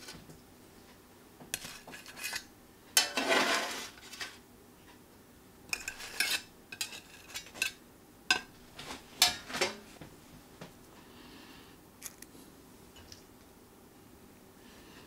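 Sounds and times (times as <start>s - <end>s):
spatula scraping on plate: 1.6s - 4.4s, 5.7s - 8.5s.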